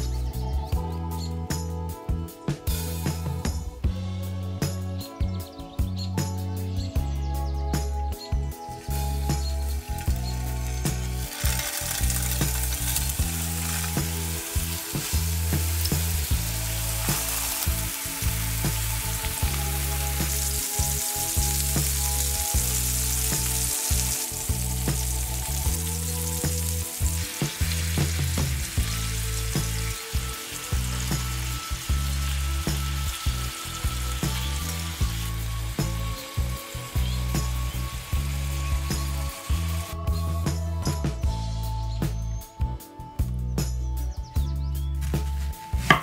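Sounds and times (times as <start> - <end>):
low background tune: 0.0 - 46.0
patties sizzling in oil: 8.7 - 40.0.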